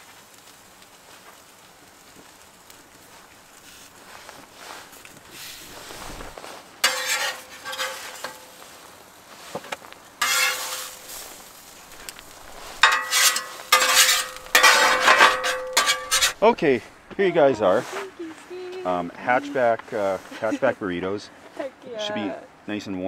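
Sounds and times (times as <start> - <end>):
faint sizzling: 0.0 - 23.0
metal spatula scraping griddle: 4.1 - 8.8, 9.4 - 16.6.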